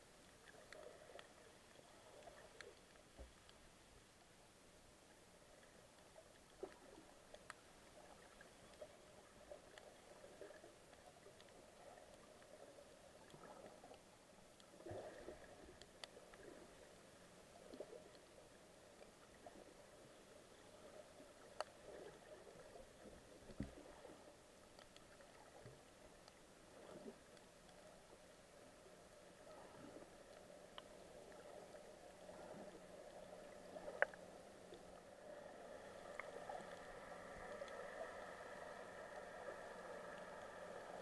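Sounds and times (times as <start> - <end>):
small clicks and pops: 0.2 - 4.4, 5.0 - 41.0.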